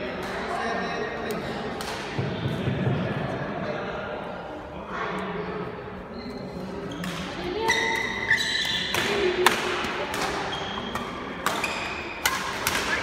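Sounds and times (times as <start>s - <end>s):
shoes squeaking on court: 6.1s - 9.0s, 10.2s - 12.1s
racket striking shuttlecock: 7.0s - 13.0s.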